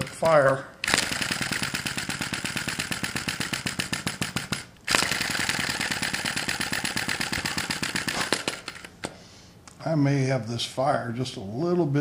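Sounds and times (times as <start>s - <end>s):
small engine clicking: 0.0s - 9.1s.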